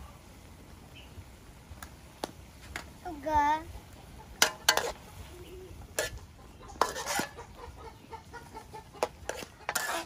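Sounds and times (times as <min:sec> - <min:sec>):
metal tongs scraping a wok: 0:04.4 - 0:05.1, 0:05.8 - 0:07.6, 0:09.0 - 0:10.0.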